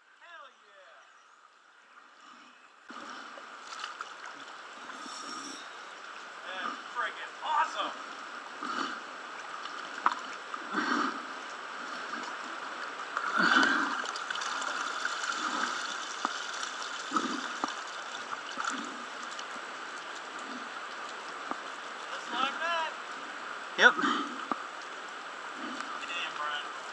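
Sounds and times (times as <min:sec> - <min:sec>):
water sloshing and splashing: 0:02.9 - 0:06.2, 0:08.0 - 0:22.2
rain on water: 0:05.7 - 0:26.9.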